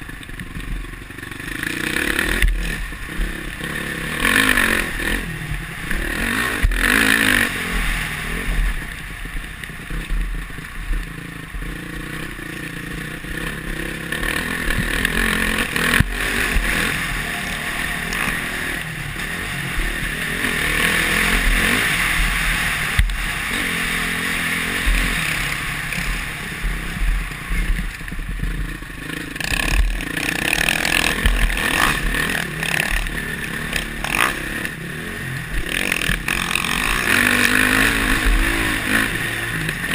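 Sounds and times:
motocross engine revving: 0:00.0 - 0:39.9
bike rattles and knocks: 0:24.8 - 0:34.7.

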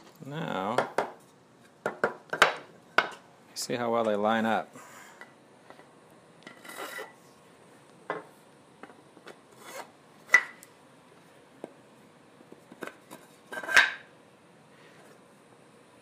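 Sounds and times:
metal rod scraping through wood: 0:06.5 - 0:07.2.

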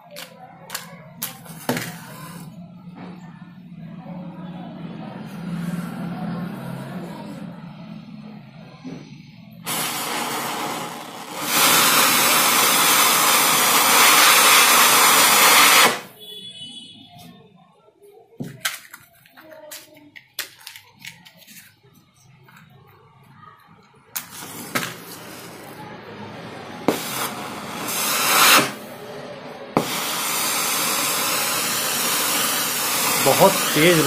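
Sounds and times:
gas hissing from nozzle: 0:00.2 - 0:02.5, 0:09.6 - 0:16.1, 0:26.8 - 0:28.9, 0:29.7 - 0:34.0.

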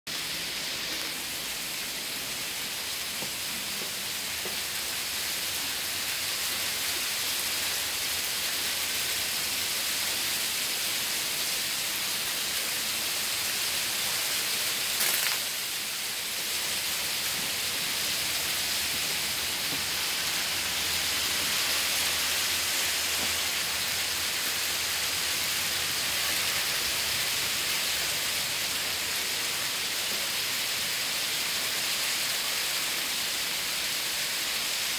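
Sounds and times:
hail striking roof and ground: 0:02.8 - 0:05.1, 0:14.7 - 0:24.8.

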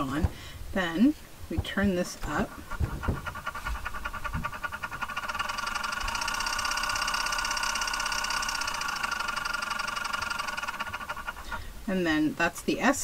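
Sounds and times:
spinning wheel motor whine: 0:01.6 - 0:11.8.

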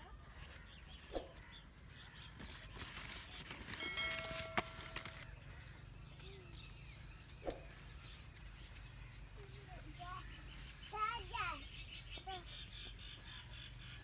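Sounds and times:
birds calling: 0:00.0 - 0:14.0
rustling and clicking: 0:02.3 - 0:05.3.

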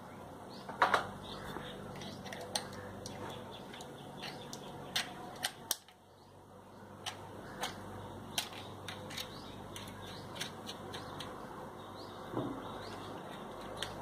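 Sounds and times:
faint steady hum: 0:00.0 - 0:14.0.

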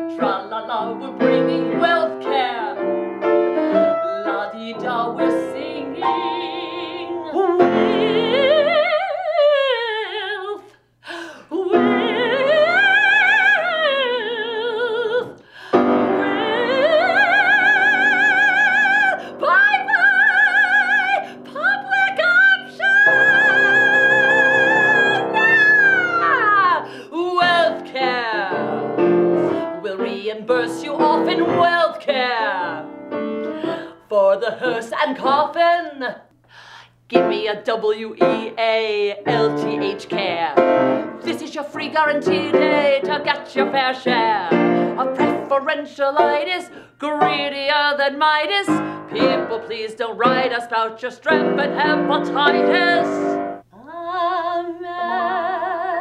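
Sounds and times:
woman singing operatically: 0:00.0 - 0:02.9, 0:03.7 - 0:36.3, 0:37.1 - 0:56.0
piano accompaniment: 0:00.0 - 0:08.8, 0:11.7 - 0:13.3, 0:15.7 - 0:34.0, 0:37.2 - 0:37.5, 0:38.1 - 0:38.6, 0:39.2 - 0:45.6, 0:46.2 - 0:47.7, 0:48.7 - 0:53.7.

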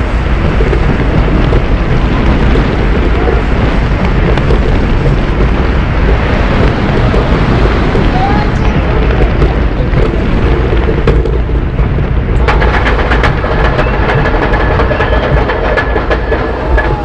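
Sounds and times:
roller coaster rumbling on track: 0:00.0 - 0:17.0
rattling clicks: 0:12.3 - 0:17.0.

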